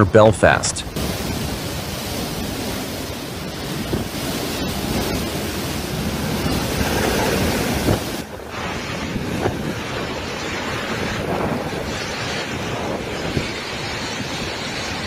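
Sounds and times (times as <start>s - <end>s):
wind buffeting microphone: 0.8s - 15.0s
waves breaking against a wall: 0.9s - 15.0s.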